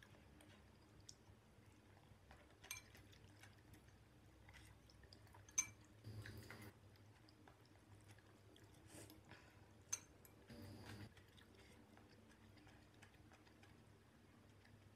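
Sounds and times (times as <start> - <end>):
utensils clinking on glass bowl: 2.6 - 3.0, 5.5 - 5.8.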